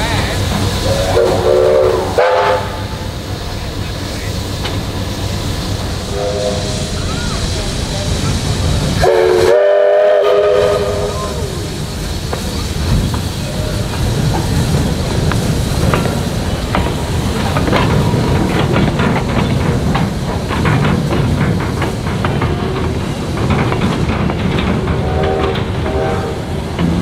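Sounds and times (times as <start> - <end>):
train rumble and hiss: 0.0 - 27.0
steam locomotive whistle: 0.8 - 3.0, 6.1 - 7.4, 9.0 - 11.7, 25.0 - 26.6.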